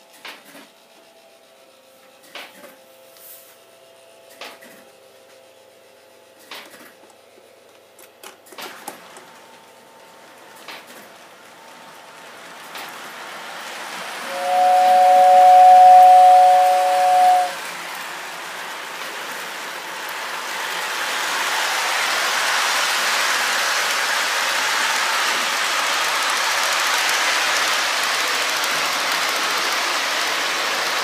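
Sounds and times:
train wheels rolling on track: 8.5s - 31.0s
model train whistle chord: 14.2s - 17.6s.

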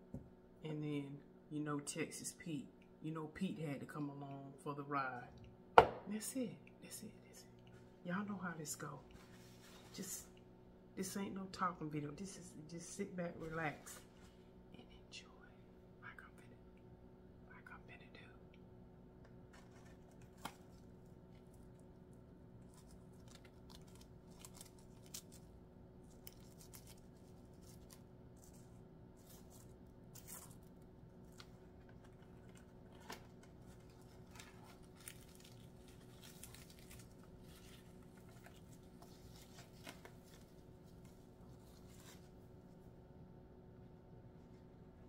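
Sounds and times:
faint steady hum: 0.0s - 45.0s
crisp breading crackling: 19.5s - 40.7s.

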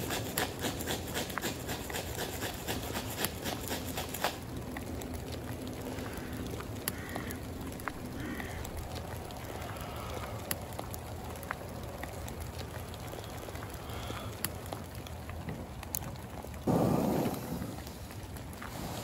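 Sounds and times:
small ticks: 0.0s - 16.6s
low background rumble: 3.8s - 19.0s
bird calling faintly: 5.7s - 10.9s.

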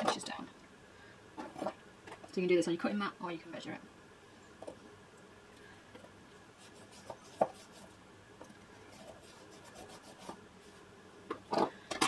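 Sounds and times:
chalk scratching on fabric: 6.6s - 8.0s, 8.9s - 10.4s.

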